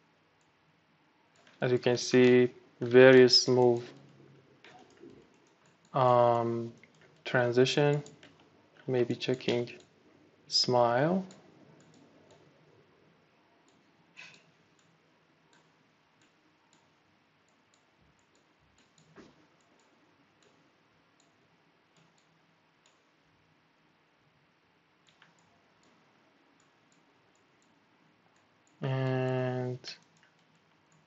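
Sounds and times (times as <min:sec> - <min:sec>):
computer mouse clicks: 0:00.4 - 0:00.6, 0:01.3 - 0:01.6, 0:03.6 - 0:06.0, 0:07.9 - 0:10.0, 0:11.3 - 0:12.5, 0:13.6 - 0:20.6, 0:21.2 - 0:23.2, 0:25.0 - 0:26.0, 0:26.6 - 0:31.0.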